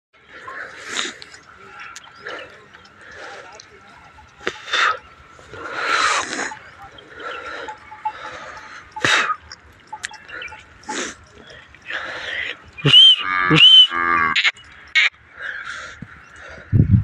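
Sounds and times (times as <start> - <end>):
cattle breathy sounds: 0.2 - 12.9.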